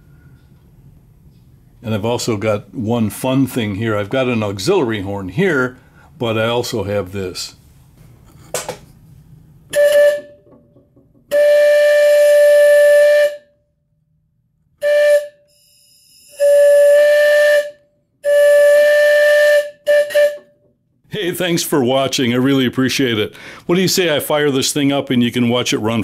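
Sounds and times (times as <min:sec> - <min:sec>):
locomotive whistle blasts: 0:09.7 - 0:10.5, 0:11.3 - 0:13.6, 0:14.8 - 0:20.7
breathy hiss: 0:23.3 - 0:23.7.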